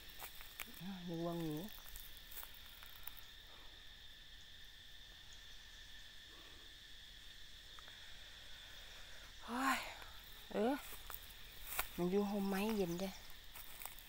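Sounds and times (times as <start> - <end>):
insect chorus droning: 0.0 - 14.0.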